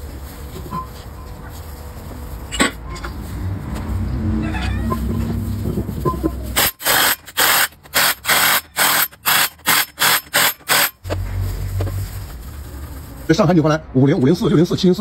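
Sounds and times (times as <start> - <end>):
impact wrench bursts: 6.5 - 11.2.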